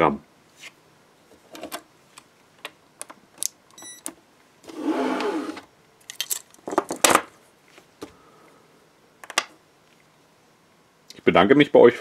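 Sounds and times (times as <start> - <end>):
short electronic beep: 3.8 - 4.0
handcuffs clacking set down: 6.0 - 6.6.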